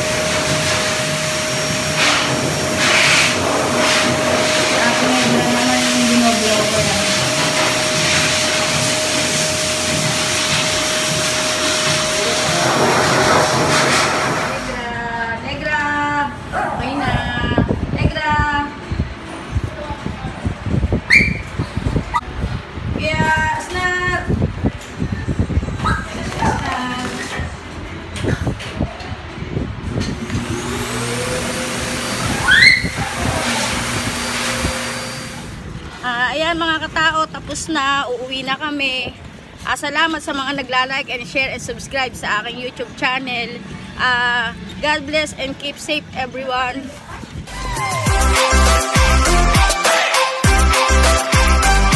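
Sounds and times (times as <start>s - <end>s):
pet dryer air rush and whine: 0.0s - 14.9s, 30.0s - 35.7s.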